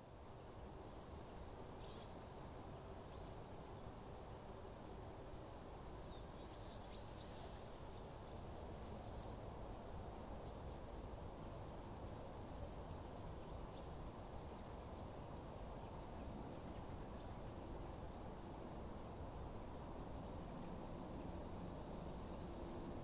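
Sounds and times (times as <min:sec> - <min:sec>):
low hiss: 0:00.0 - 0:23.0
small bird chirping: 0:12.2 - 0:22.7.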